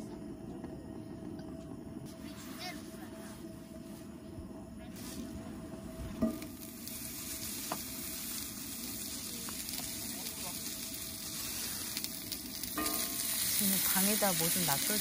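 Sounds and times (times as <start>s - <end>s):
food sizzling in a pan: 6.1s - 15.0s.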